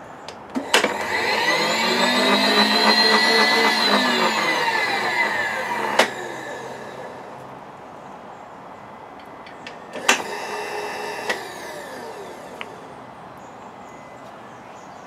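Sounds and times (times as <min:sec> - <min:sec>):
click: 0:00.3 - 0:01.2, 0:05.9 - 0:06.2, 0:12.6 - 0:12.8
milling machine running: 0:00.5 - 0:07.5
falling machine whine: 0:00.5 - 0:07.6, 0:09.4 - 0:13.1.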